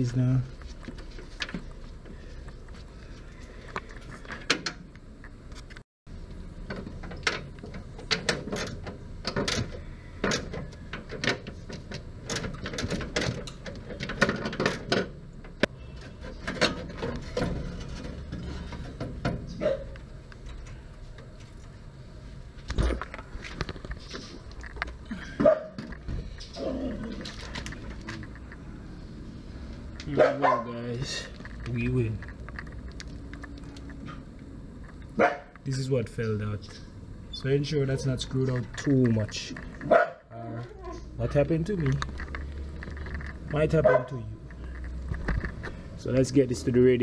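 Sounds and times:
metal hardware clunks: 6.7 - 20.8.

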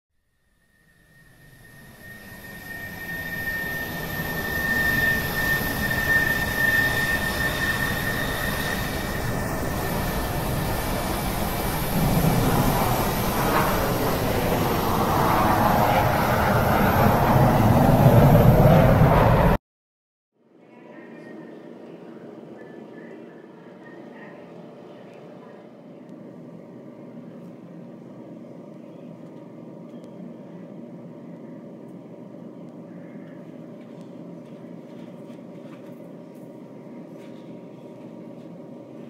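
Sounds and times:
jet engine whine: 0.4 - 19.6, 20.9 - 39.0
jet engine roar: 1.0 - 19.6.

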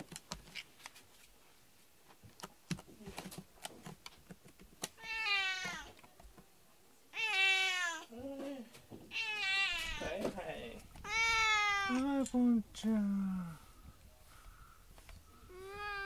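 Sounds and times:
cat meowing: 5.0 - 5.9, 7.1 - 8.1, 9.1 - 10.2, 11.0 - 12.0, 15.5 - 16.0.

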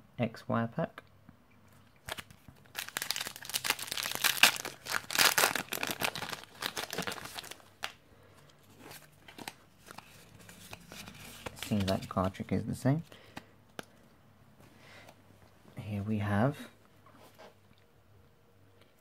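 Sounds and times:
foil wrapper crinkling: 2.1 - 8.0
cards drawn out: 8.6 - 12.4.

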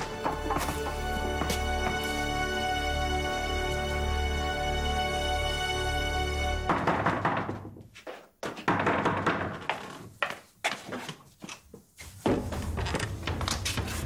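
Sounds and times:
thunks and knocks: 6.6 - 10.0.

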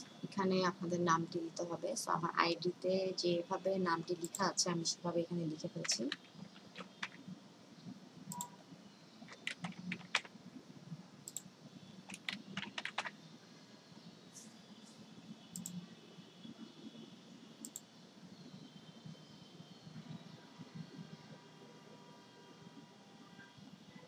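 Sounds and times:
computer keyboard typing: 4.0 - 4.5, 5.5 - 7.2, 8.3 - 8.6, 9.3 - 10.3, 12.1 - 13.2, 15.6 - 15.8
mouse clicks: 8.3 - 8.6, 15.5 - 15.8.

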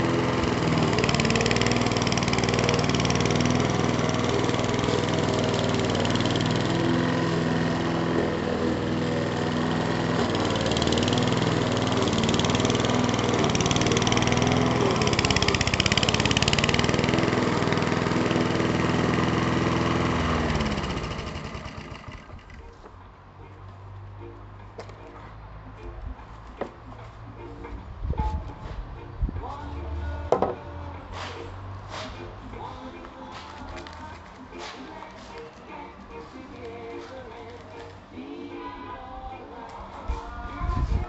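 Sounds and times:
mower cutting thick grass: 0.0 - 22.8
lawnmower engine running: 0.0 - 23.0.

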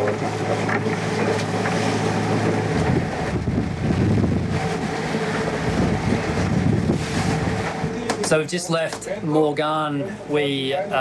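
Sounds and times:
boat engine hum: 0.0 - 11.0
water noise: 0.0 - 11.0
wind buffeting the microphone: 1.6 - 8.4.

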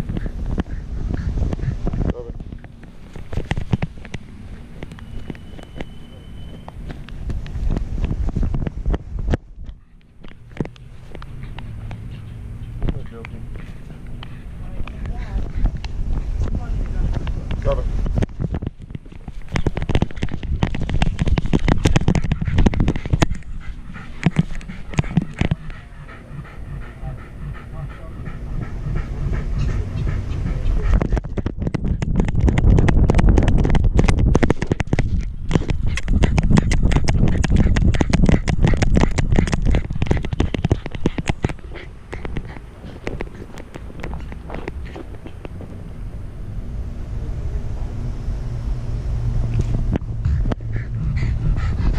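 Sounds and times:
wind on microphone: 0.0 - 12.2, 14.2 - 27.2, 28.5 - 46.5, 48.9 - 51.9
camera clattering on dog harness: 0.0 - 25.9, 30.4 - 45.8
low rumble: 0.0 - 51.9
camera harness knocking and rustling: 18.1 - 23.5, 31.2 - 41.6.

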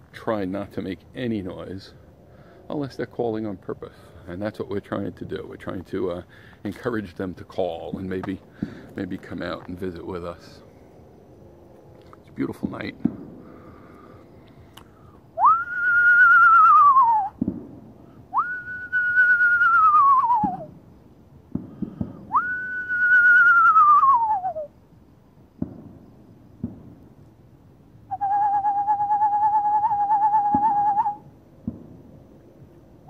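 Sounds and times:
person whistling owl call: 15.4 - 17.4, 18.3 - 20.7, 22.3 - 24.8, 28.1 - 31.3.

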